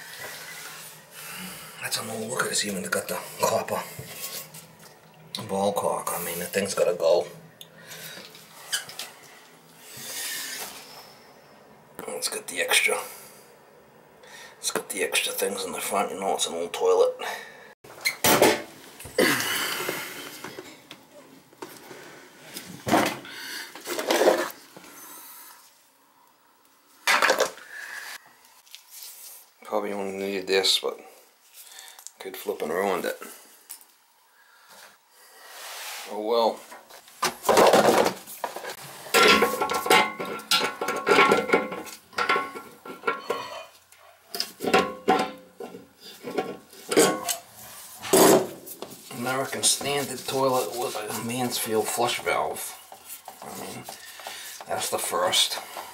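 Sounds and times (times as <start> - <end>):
rustling scrapes: 3.9 - 4.8, 23.8 - 24.7, 35.4 - 39.6, 46.1 - 55.9.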